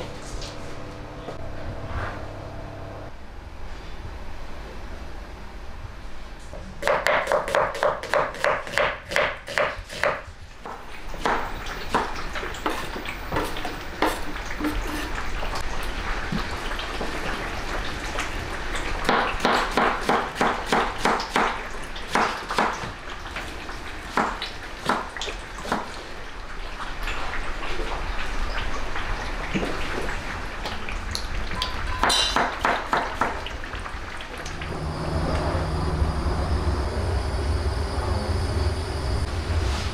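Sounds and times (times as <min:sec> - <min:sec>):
ladle and lid clinking on pots: 0:32.0 - 0:32.6.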